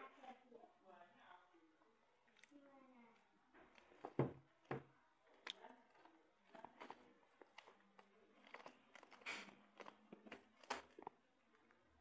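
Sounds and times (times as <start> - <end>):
knock: 4.1 - 4.9.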